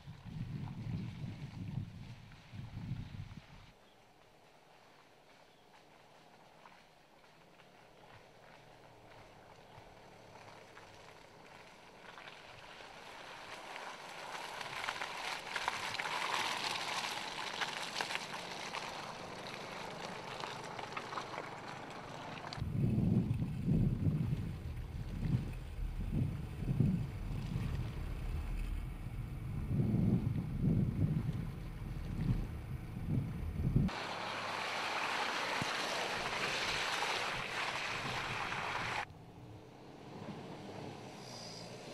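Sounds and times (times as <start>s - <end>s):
wind buffeting: 0.0s - 3.7s, 22.6s - 34.0s
tyres crunching over dirt and stones: 5.6s - 38.5s
low engine rumble: 16.7s - 41.9s
rushing hiss through mud: 33.9s - 39.1s, 40.3s - 41.9s.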